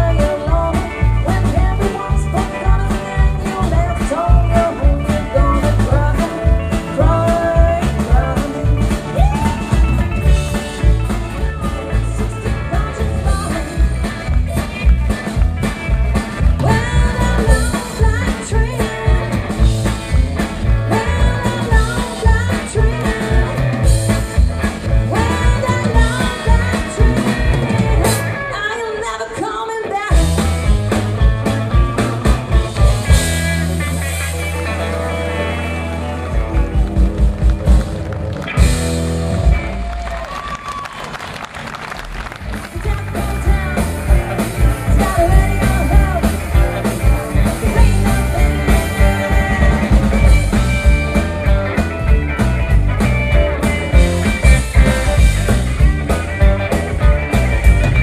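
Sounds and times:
person singing: 0.0 - 15.4, 16.4 - 24.2, 24.9 - 30.6, 42.6 - 51.9
bass guitar: 0.0 - 58.0
drums: 0.0 - 58.0
guitars: 0.0 - 58.0.

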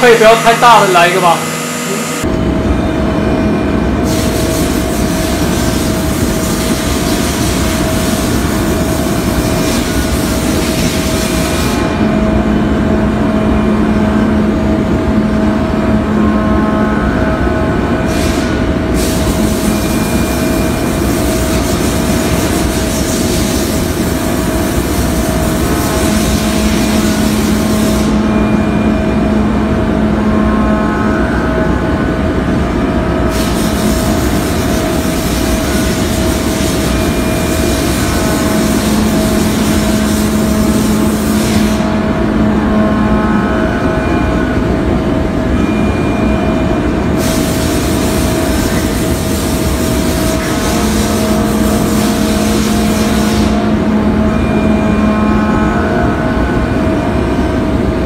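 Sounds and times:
milling machine cutting metal: 0.0 - 2.3
low hum: 25.6 - 33.3.

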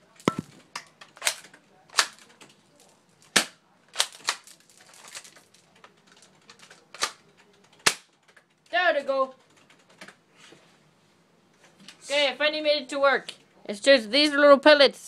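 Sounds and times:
plastic gun action clacks: 0.2 - 2.6, 3.3 - 7.2, 7.8 - 8.5.

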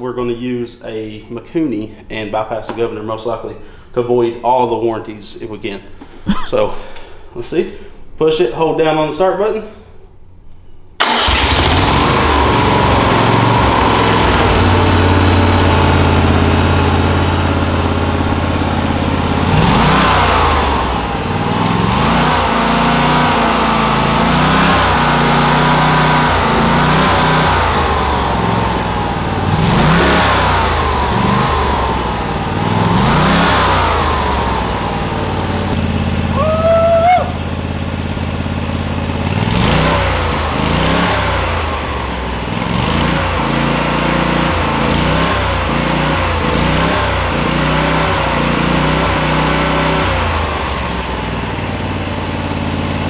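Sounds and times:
engine idling and revving: 11.0 - 53.0.

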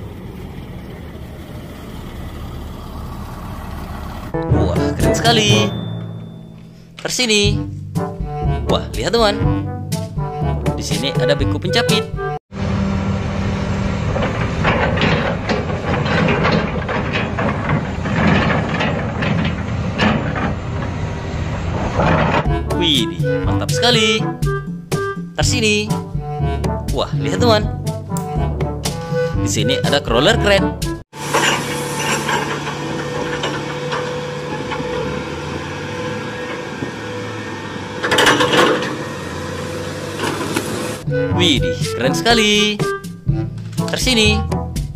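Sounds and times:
excavator diesel engine running: 0.0 - 7.0, 12.5 - 25.3, 30.8 - 41.9
metallic clanks and knocks: 4.4 - 7.0, 13.8 - 22.6, 31.2 - 37.4, 38.0 - 40.8
loud burst of machine noise: 31.2 - 41.0.

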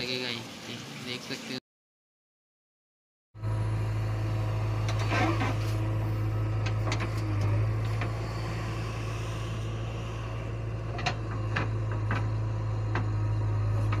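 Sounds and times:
diesel engine droning: 3.4 - 14.0
sharp knocks and clicks: 10.9 - 13.1.

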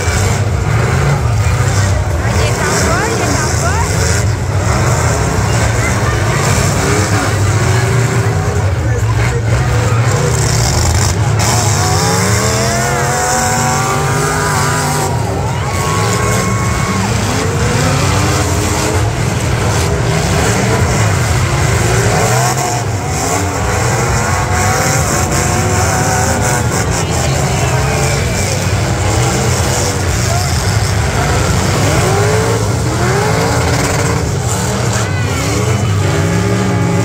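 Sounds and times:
car engines revving: 0.0 - 37.0
heavy engine rumble: 0.0 - 37.0.

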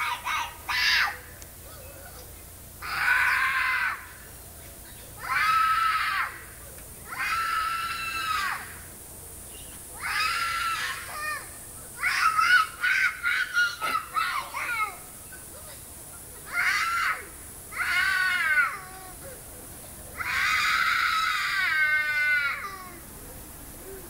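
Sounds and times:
little girl screaming: 0.0 - 1.2, 2.8 - 4.2, 5.2 - 6.4, 7.1 - 8.7, 10.0 - 15.0, 16.5 - 19.2, 20.2 - 23.0.

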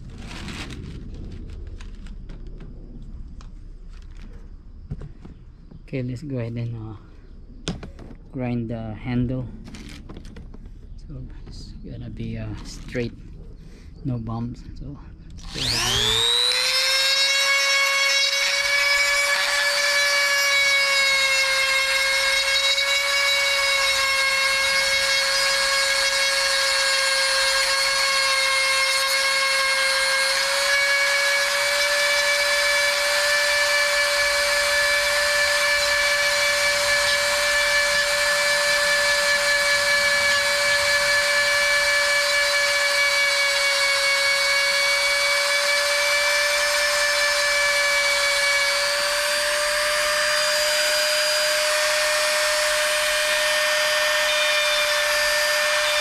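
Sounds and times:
rotary tool grinding plastic: 0.0 - 2.7, 9.6 - 10.9, 12.2 - 13.2, 15.3 - 56.0.

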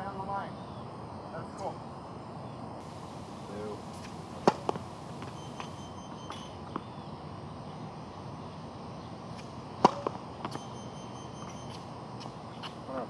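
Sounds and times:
tennis racket hitting ball: 4.0 - 5.3, 9.8 - 10.6.

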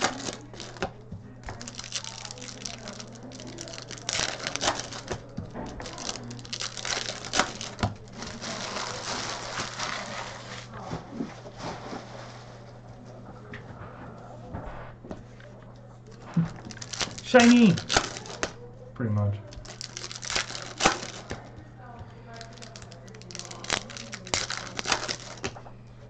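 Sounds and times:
cards clicking and rustling: 0.0 - 10.6, 16.1 - 18.6, 19.6 - 21.5, 22.3 - 25.7
wrappers crinkling: 0.0 - 12.2, 16.1 - 18.6, 19.4 - 21.5, 22.2 - 25.7.

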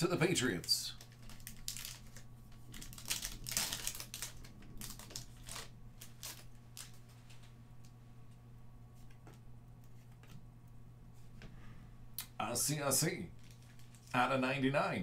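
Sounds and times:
foil wrappers crinkling: 0.9 - 7.5, 13.4 - 14.2.

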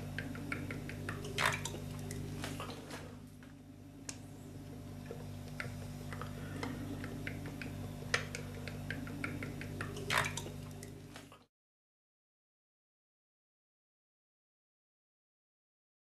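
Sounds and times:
steady low hum: 0.0 - 11.5.

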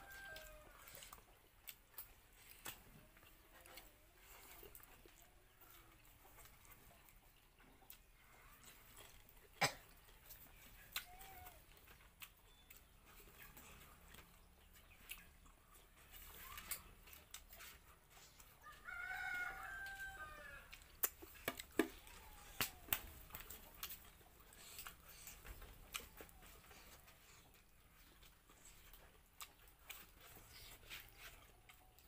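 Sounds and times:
rooster crowing: 0.0 - 1.0, 18.6 - 20.7.

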